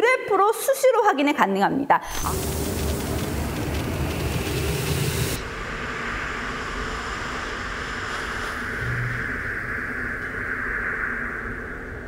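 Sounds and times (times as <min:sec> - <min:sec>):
air purifier fan rushing: 0:02.1 - 0:05.6.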